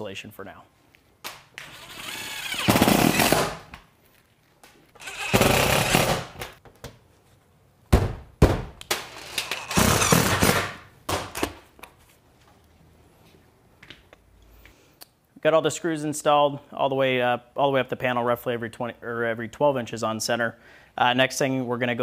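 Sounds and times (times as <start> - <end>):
impact driver hammering screws: 1.6 - 3.7, 5.0 - 6.5, 9.4 - 10.8.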